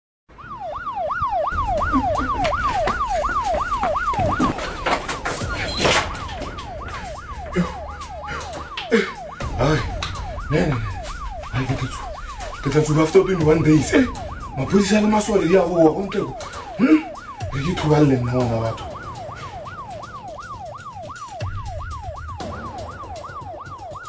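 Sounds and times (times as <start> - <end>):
emergency vehicle siren yelping: 0.3 - 24.0
scattered knocks and clicks: 1.4 - 24.0
low rumble: 9.4 - 16.3.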